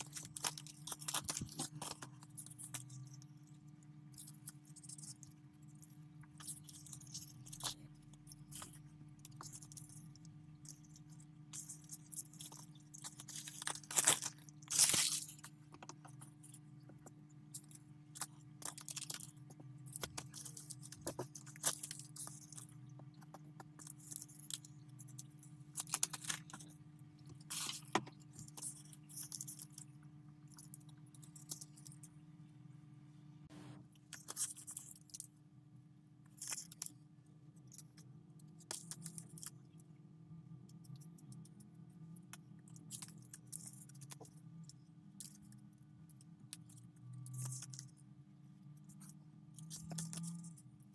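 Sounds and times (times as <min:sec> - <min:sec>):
foil sheets crinkling: 0:00.0 - 0:03.2, 0:11.8 - 0:15.6
faint steady hum: 0:00.0 - 0:50.9.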